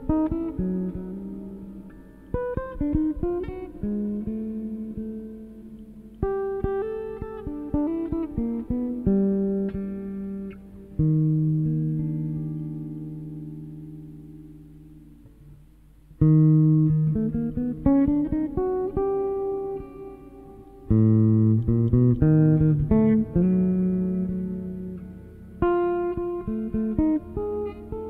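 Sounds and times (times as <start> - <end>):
solo jazz electric guitar: 0.0 - 28.0.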